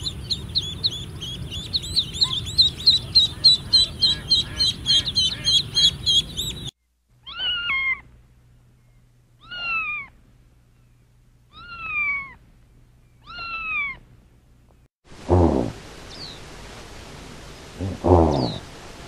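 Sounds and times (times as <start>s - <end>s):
chicks peeping: 0.0s - 6.7s
kitten meowing: 7.2s - 8.0s, 11.5s - 12.4s.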